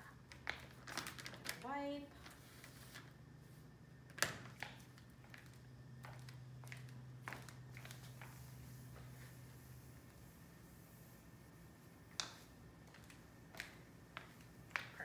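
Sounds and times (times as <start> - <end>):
faint low hum: 0.0 - 15.0
footsteps on tiled floor: 4.5 - 10.6, 11.9 - 15.0.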